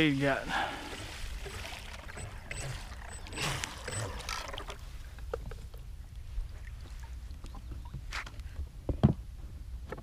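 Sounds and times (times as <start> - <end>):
water splash: 0.8 - 5.0.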